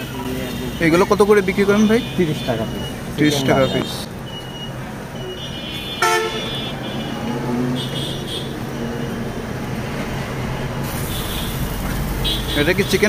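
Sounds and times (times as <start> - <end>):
street traffic engine hum: 0.0 - 13.0
vehicle horn toot: 1.8 - 8.6, 11.0 - 13.0.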